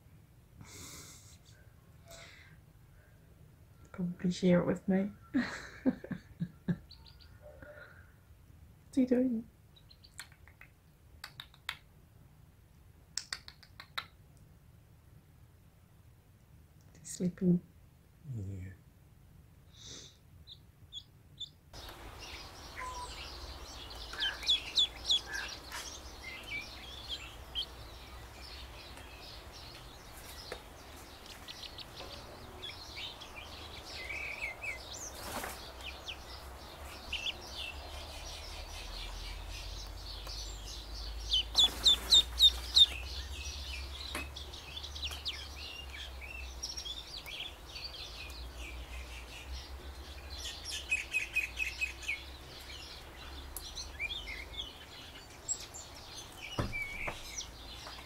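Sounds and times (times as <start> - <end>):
duckling peeping: 6.9 - 7.3, 20.5 - 49.5.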